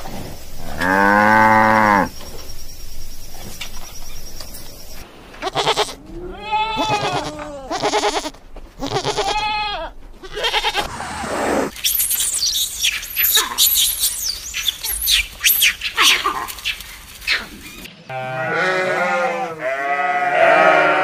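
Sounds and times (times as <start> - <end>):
sheep bleating: 5.4 - 10.9, 18.1 - 21.0
lemurs squealing and chirping: 11.7 - 17.9.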